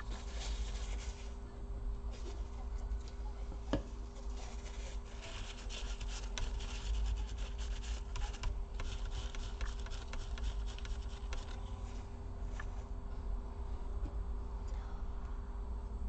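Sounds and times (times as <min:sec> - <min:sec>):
tissue rubbing on laptop chip: 0:00.0 - 0:01.4, 0:04.2 - 0:11.8
steady low hum: 0:00.0 - 0:16.0.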